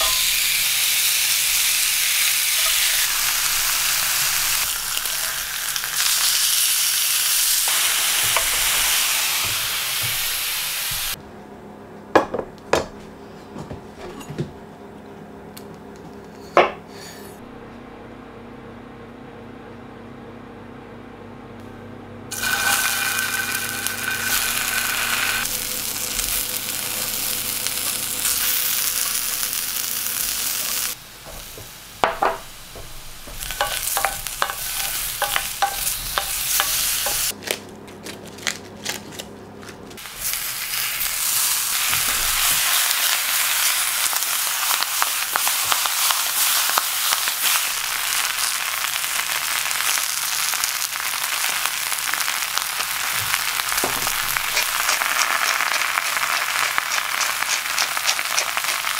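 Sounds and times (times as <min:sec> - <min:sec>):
vegetables sizzling in a frying pan: 0:00.0 - 0:11.2, 0:22.3 - 0:37.4, 0:40.0 - 0:58.9
clattering knocks in a pan: 0:53.2 - 0:54.7.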